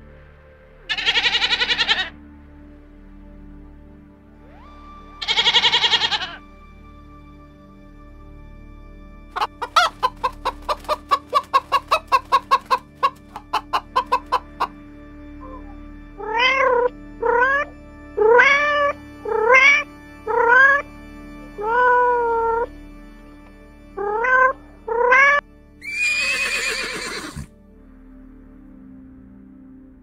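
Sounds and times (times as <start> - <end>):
cat meowing: 0.9 - 2.1, 4.5 - 6.4, 24.0 - 27.5
rooster clucking: 5.2 - 6.4, 9.4 - 14.8.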